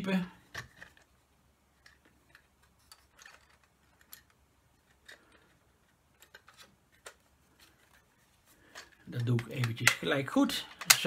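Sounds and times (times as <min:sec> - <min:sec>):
plastic parts clicking together: 0:00.5 - 0:08.0, 0:08.6 - 0:11.0.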